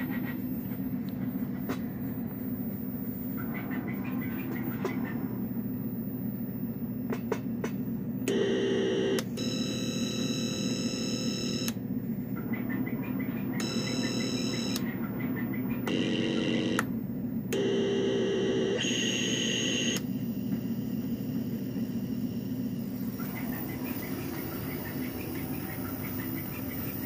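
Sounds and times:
synthesizer harsh buzzing drone: 12.4 - 16.8, 21.5 - 27.0.

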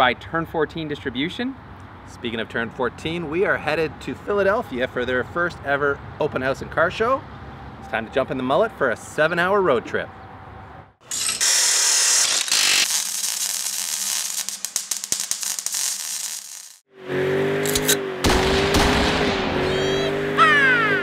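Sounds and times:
harsh hissing with crackling clicks: 12.7 - 16.8
car engine at high revs: 16.9 - 21.0.

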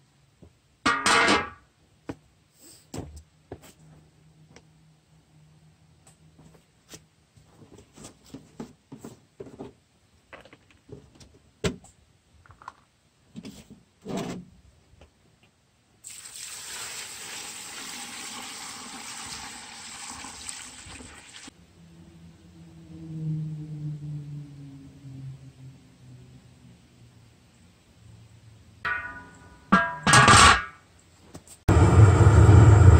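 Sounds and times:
water pouring into a pot: 16.0 - 21.5.

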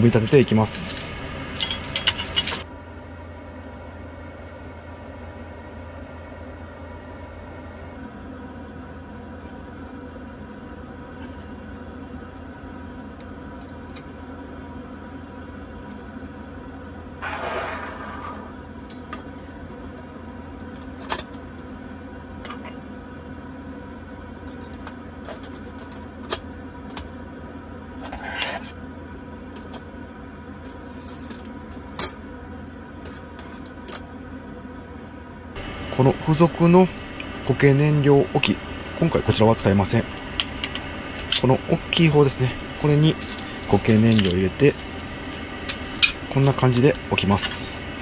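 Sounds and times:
steady low hum: 0.0 - 48.0
metal scrape: 17.2 - 18.5.

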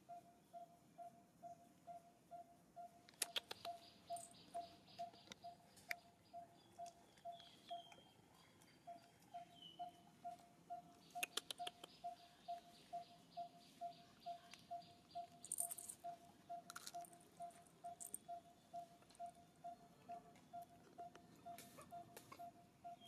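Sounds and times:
cluster of clicks: 3.0 - 6.1, 10.3 - 12.1, 15.3 - 18.4.

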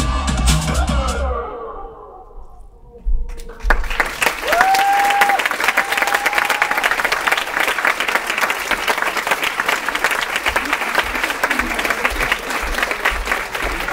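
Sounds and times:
music: 0.0 - 1.4
audience applauding: 3.4 - 13.9.

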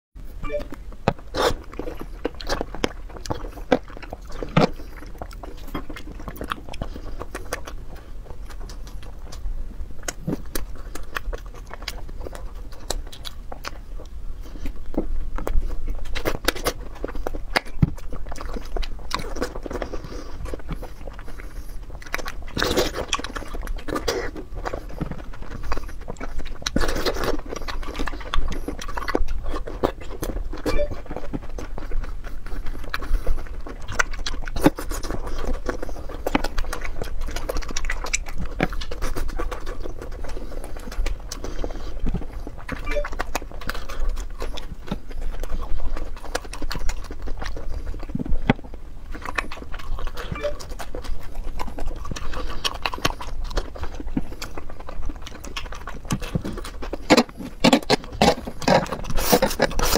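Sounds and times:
chewing soft sweets: 0.2 - 59.9.

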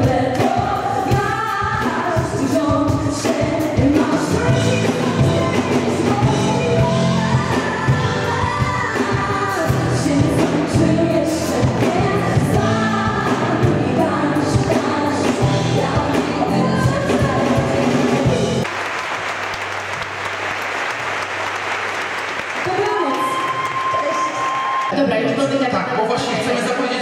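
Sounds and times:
women's vocal group singing: 0.0 - 18.6
drums and bass music: 0.0 - 18.7
audience applauding: 18.6 - 25.0.

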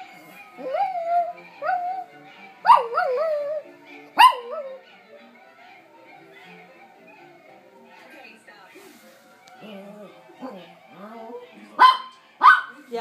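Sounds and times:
television music: 0.0 - 13.0
dog howling: 0.3 - 7.4.

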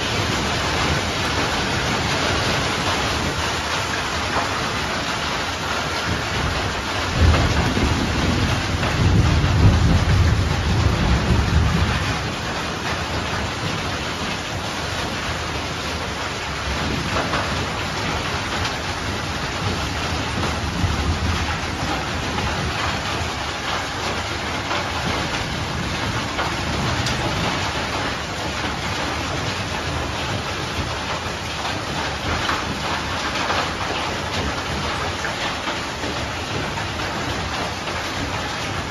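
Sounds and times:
heavy rain and hail: 0.0 - 38.9
wind: 0.0 - 38.9
thunder rumbling: 5.8 - 35.5.

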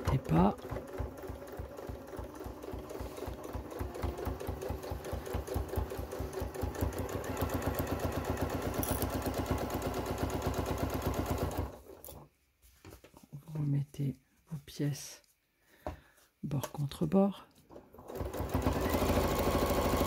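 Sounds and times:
sewing machine stitching: 0.0 - 12.2, 17.8 - 20.0.

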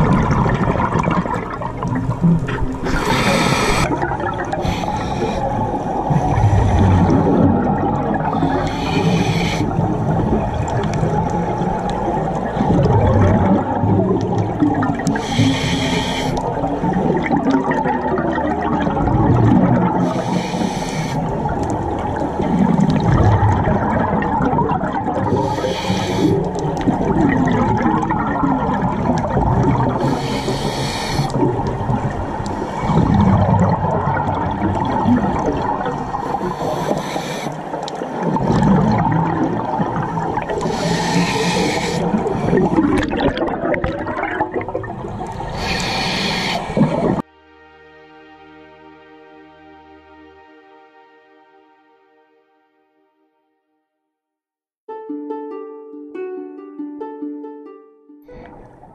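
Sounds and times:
exhaled bubbles bubbling: 0.0 - 47.3
regulator inhale hiss: 2.8 - 6.9, 8.3 - 9.8, 15.1 - 16.4, 20.0 - 21.4, 25.3 - 26.6, 30.0 - 31.5, 36.1 - 37.8, 40.6 - 42.7, 45.4 - 47.2.

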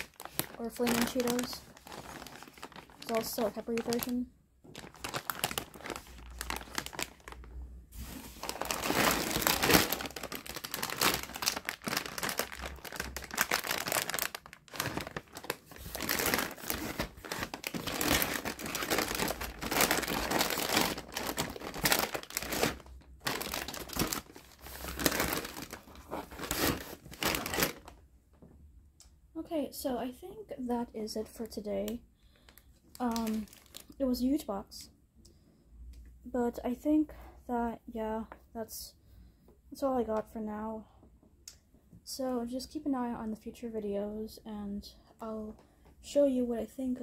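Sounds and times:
crinkly packaging rustling: 0.0 - 28.0, 31.2 - 34.2.

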